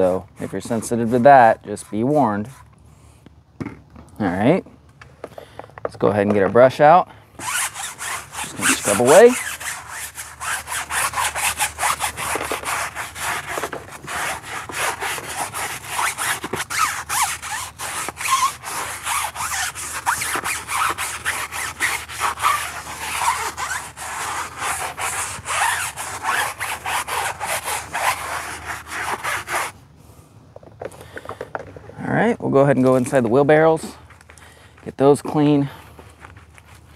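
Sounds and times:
brush scrubbing wet tire: 0:00.0 - 0:02.7, 0:07.4 - 0:29.8.

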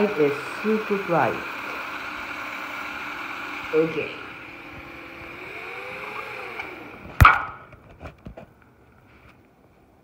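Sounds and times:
model locomotive motor whining: 0:00.0 - 0:07.2
sharp knock: 0:07.2 - 0:07.6.

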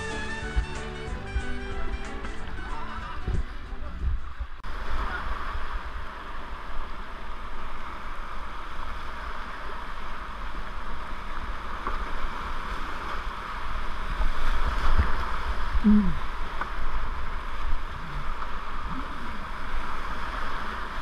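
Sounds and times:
rapids rushing: 0:00.0 - 0:11.1.

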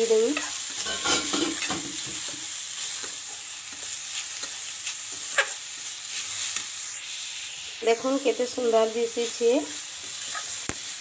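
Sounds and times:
food sizzling in a pan: 0:00.0 - 0:11.0
metal spatula scraping pan: 0:00.3 - 0:01.8.

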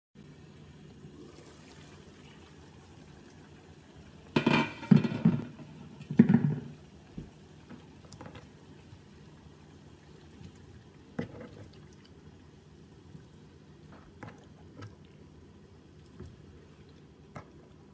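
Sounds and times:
water boiling: 0:00.2 - 0:17.9
glass lid clattering: 0:04.4 - 0:05.5.

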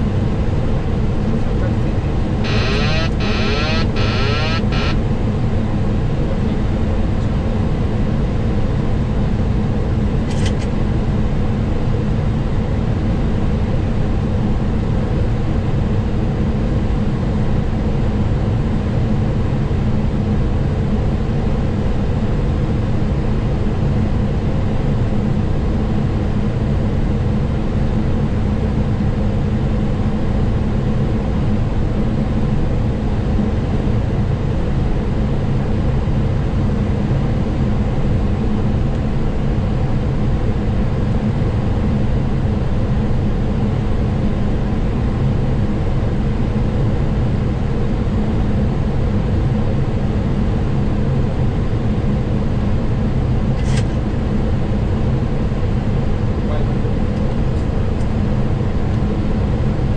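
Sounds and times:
thin high buzz: 0:02.4 - 0:05.0
short click: 0:53.6 - 0:54.0.

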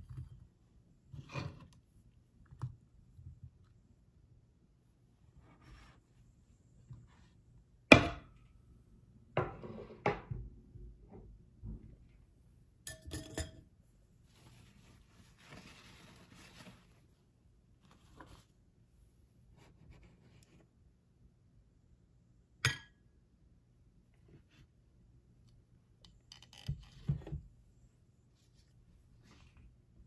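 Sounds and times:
tableware knocking and clinking: 0:12.9 - 0:13.6
paper napkin rustling: 0:14.3 - 0:17.0.

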